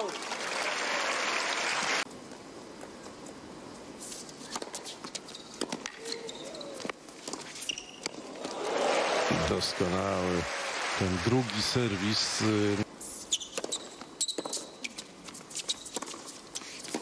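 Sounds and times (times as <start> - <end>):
shoes squeaking on hard court: 4.0 - 8.6, 13.1 - 17.0
crowd noise: 8.2 - 12.9.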